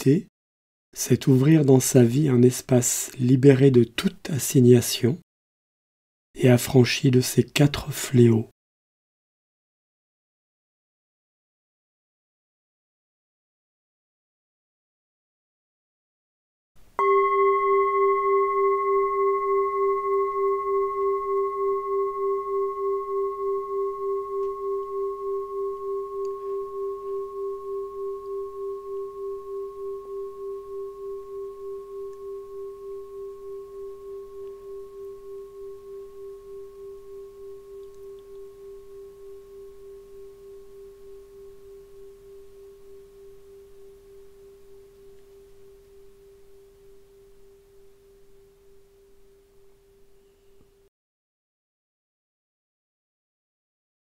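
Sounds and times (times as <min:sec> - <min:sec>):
singing bowl ringing: 0:17.0 - 0:50.4.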